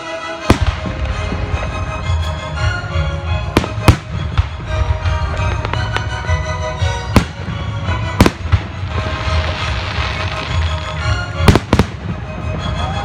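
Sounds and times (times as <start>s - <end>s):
music: 0.0s - 13.0s
firework shells bursting: 3.5s - 4.6s.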